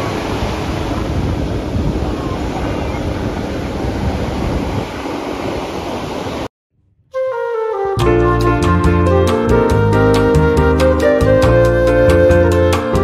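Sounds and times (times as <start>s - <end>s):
wind on microphone: 0.0s - 13.0s
surf: 7.9s - 13.0s.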